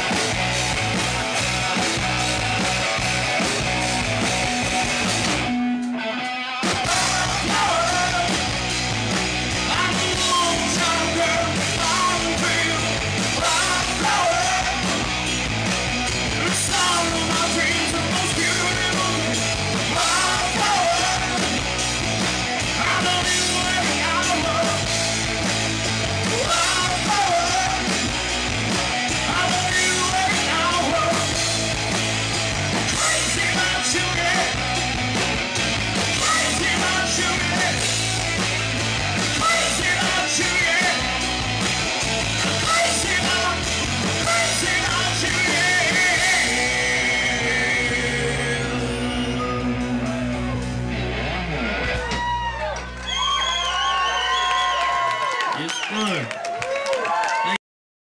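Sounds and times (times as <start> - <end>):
electric guitars: 0.0 - 56.2
bass: 0.0 - 56.9
drums: 0.0 - 57.6
male singer: 6.7 - 8.6, 9.5 - 15.3, 16.3 - 21.7, 22.6 - 25.0, 26.2 - 28.2, 29.1 - 31.6, 32.8 - 35.0, 36.1 - 38.3, 39.2 - 50.6.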